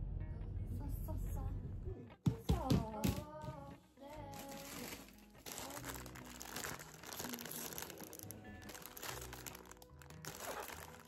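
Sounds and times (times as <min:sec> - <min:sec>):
background music: 0:00.0 - 0:11.0
plastic packaging crinkling: 0:04.3 - 0:11.0.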